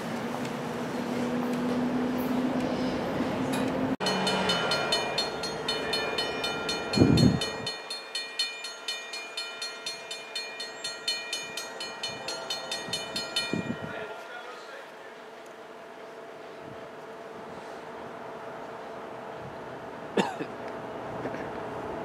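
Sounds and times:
crossing warning bell ringing: 3.5s - 14.8s.

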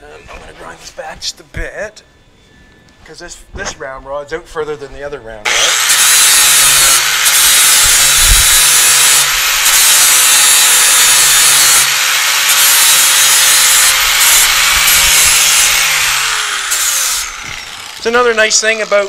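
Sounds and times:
grinder motor winding down: 5.5s - 19.0s
power grinder grinding metal: 5.5s - 19.0s.

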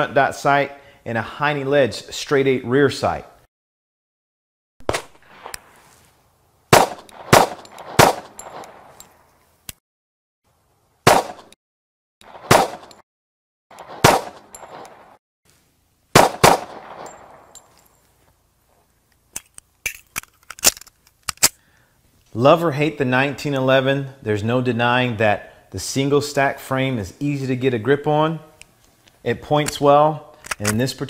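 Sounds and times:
pistol shots with echo: 4.8s - 5.7s, 6.7s - 9.0s, 11.1s - 11.5s, 12.2s - 13.0s, 13.8s - 15.2s, 16.2s - 17.6s.

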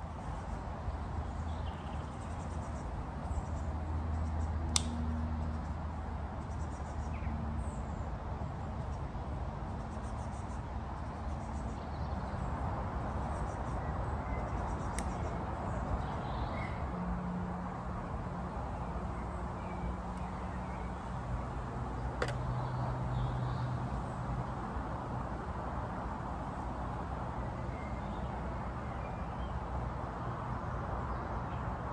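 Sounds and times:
sharp clicks: 4.7s - 5.0s.

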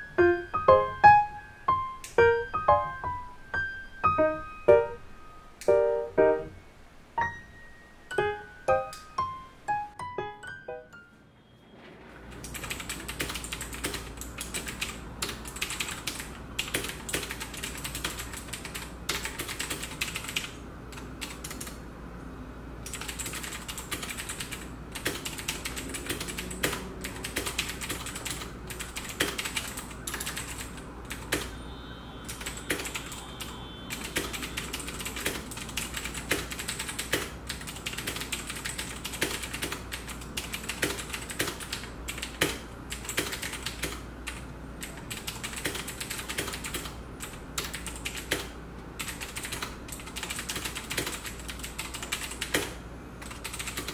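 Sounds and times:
fast mechanical keyboard typing: 12.3s - 21.8s, 22.8s - 31.5s, 32.3s - 53.9s.

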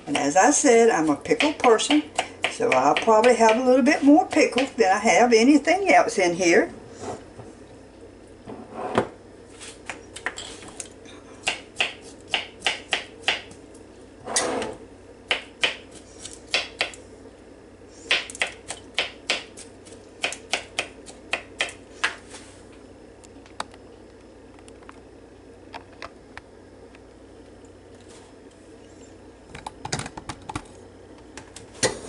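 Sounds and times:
knife chopping on plastic board: 1.2s - 4.7s, 11.4s - 13.6s, 15.3s - 15.9s, 16.5s - 17.0s, 18.1s - 19.6s, 20.2s - 22.2s.

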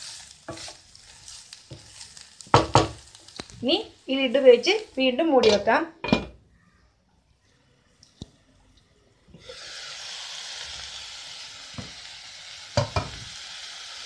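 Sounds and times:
stir-fry sizzling in a frying pan: 0.0s - 5.8s, 9.4s - 14.0s.

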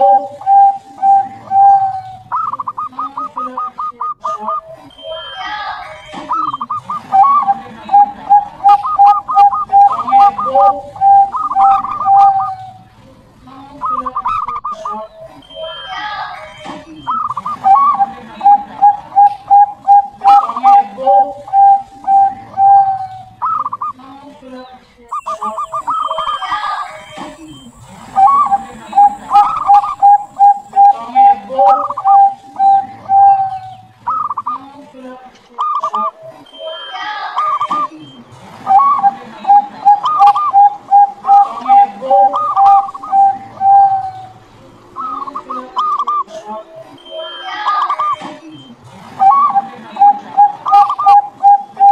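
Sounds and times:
dove cooing: 0.0s - 13.0s, 17.1s - 24.0s, 25.1s - 34.6s, 38.6s - 46.4s, 49.2s - 51.9s.

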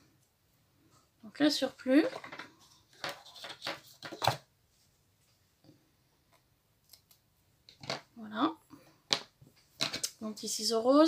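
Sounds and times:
tape rustling and scraping: 2.0s - 4.9s.

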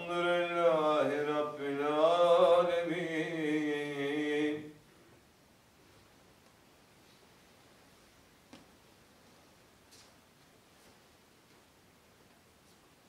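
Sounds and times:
man chanting: 0.0s - 4.8s.

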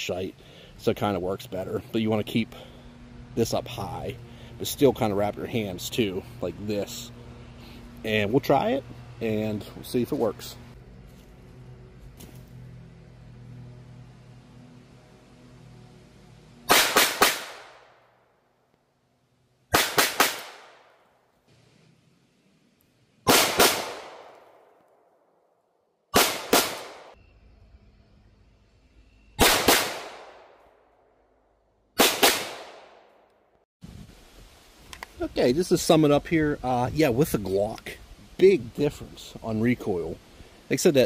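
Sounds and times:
pistol shots echoing: 16.7s - 17.9s, 19.7s - 20.9s, 23.3s - 24.3s, 26.1s - 27.2s, 29.4s - 30.5s, 32.0s - 33.0s.

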